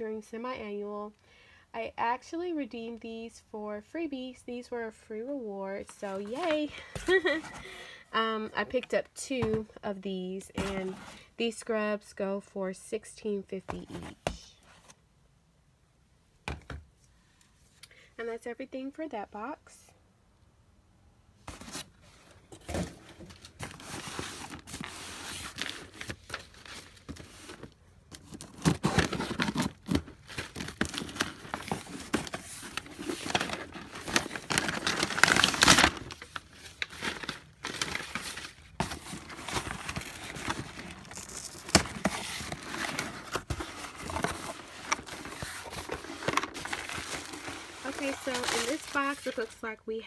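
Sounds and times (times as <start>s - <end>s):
plastic packaging crinkling: 23.3s - 49.6s
packing tape ripping: 28.2s - 38.3s, 39.3s - 49.4s.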